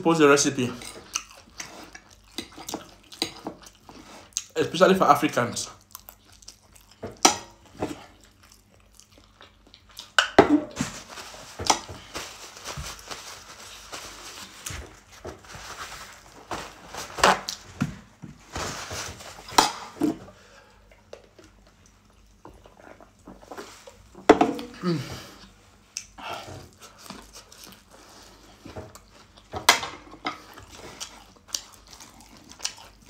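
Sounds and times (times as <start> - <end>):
chewing: 0.9 - 4.6, 5.8 - 10.2, 25.9 - 29.5, 30.4 - 33.0.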